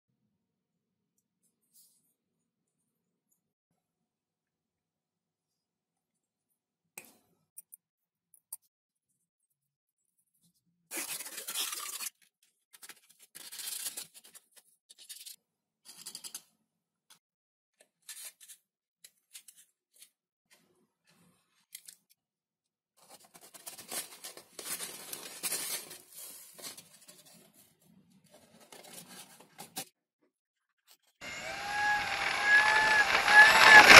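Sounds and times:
foam being cut and scraped: 0:31.2 - 0:33.9.

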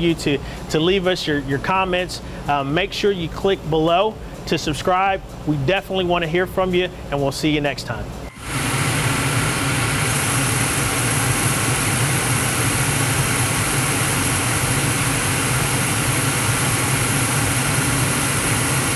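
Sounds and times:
low hum: 0:08.2 - 0:18.9
furnace burner flames rushing: 0:08.3 - 0:18.9.

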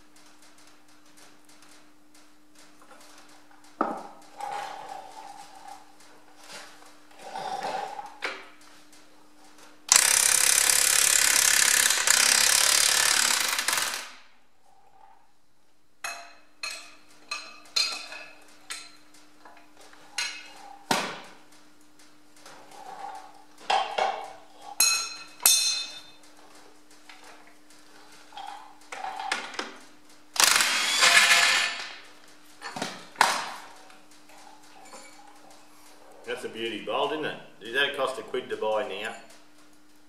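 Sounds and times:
impact wrench hammering: 0:09.9 - 0:14.1
metallic clinks and knocks: 0:23.7 - 0:26.6.

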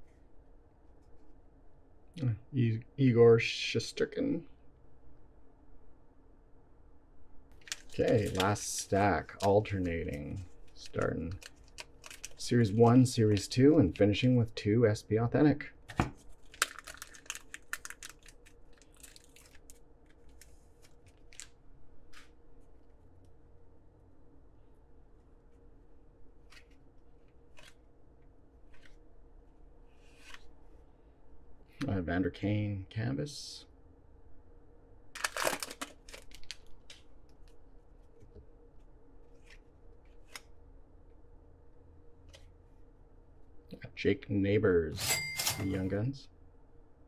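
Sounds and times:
cards rustling and ticking: 0:07.5 - 0:14.0, 0:16.1 - 0:22.4, 0:28.6 - 0:29.0, 0:35.2 - 0:38.2, 0:39.2 - 0:40.5
foil wrapper tearing and crinkling: 0:07.6 - 0:08.6, 0:10.7 - 0:12.5, 0:16.3 - 0:21.5, 0:35.2 - 0:36.9.

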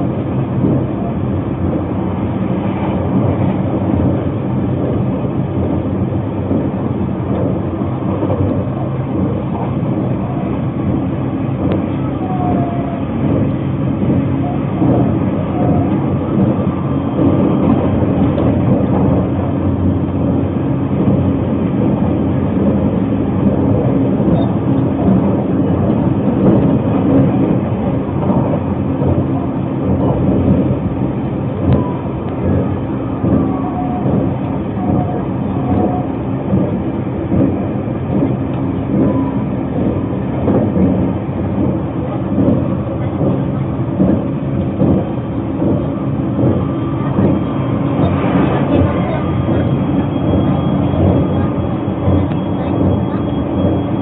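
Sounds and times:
train running inside passenger car: 0:00.0 - 0:54.0.

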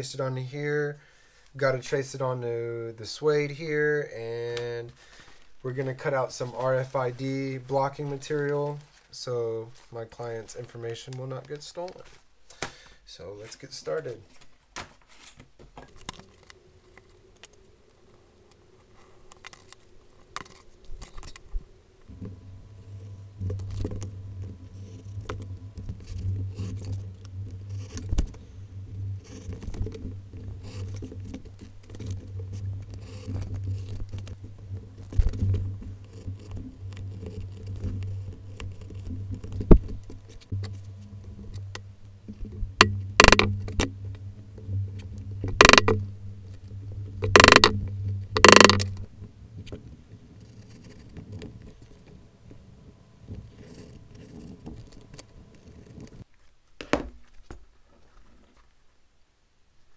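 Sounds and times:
low steady hum: 0:15.8 - 0:59.9
mallet striking hole punch: 0:42.8 - 0:43.6, 0:45.6 - 0:46.0, 0:47.3 - 0:47.8
tool clicks and taps: 0:42.8 - 0:43.9, 0:45.6 - 0:46.0, 0:47.2 - 0:47.8, 0:48.4 - 0:49.0.

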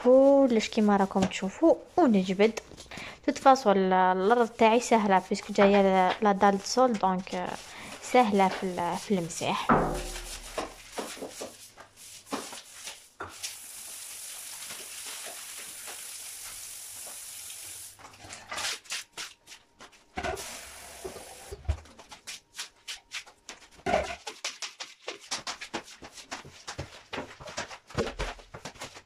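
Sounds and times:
brush scrubbing tiled floor: 0:00.0 - 0:02.6, 0:04.3 - 0:26.5
steady hiss: 0:13.2 - 0:18.0.

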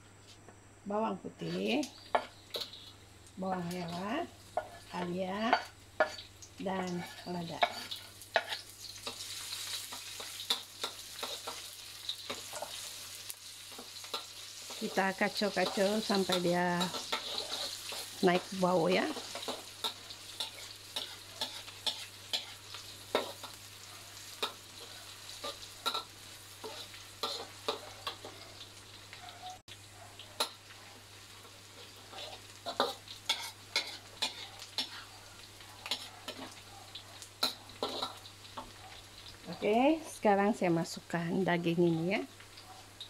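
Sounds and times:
aromatics sizzling in a wok: 0:00.0 - 0:43.0
metal spatula scraping a wok: 0:01.4 - 0:02.9, 0:06.9 - 0:11.7, 0:12.3 - 0:18.5, 0:19.1 - 0:28.4, 0:31.6 - 0:36.6, 0:37.4 - 0:38.7.

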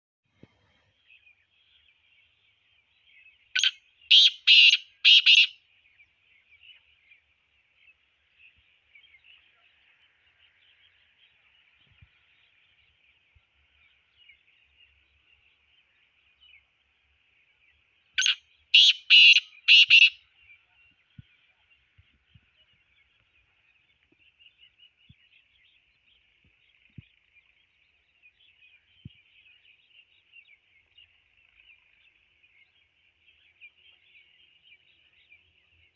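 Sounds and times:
francolin calling: 0:03.6 - 0:05.6, 0:18.2 - 0:20.6.

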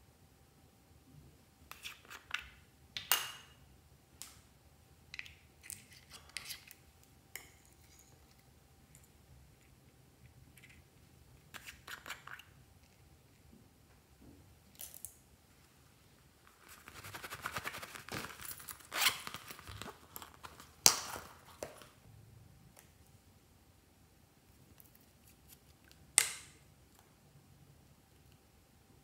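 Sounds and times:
plastic crackling: 0:16.7 - 0:22.0.

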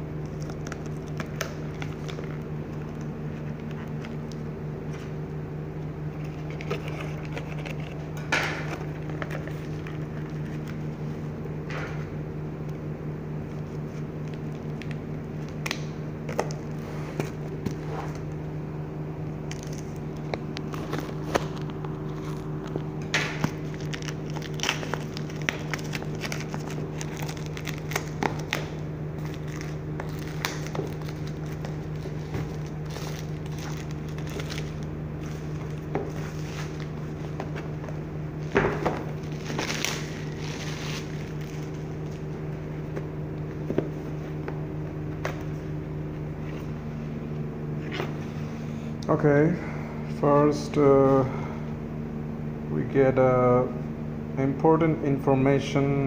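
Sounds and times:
steady low hum: 0:00.0 - 0:56.0
shrink wrap crackling: 0:19.4 - 0:37.3, 0:39.1 - 0:42.3.

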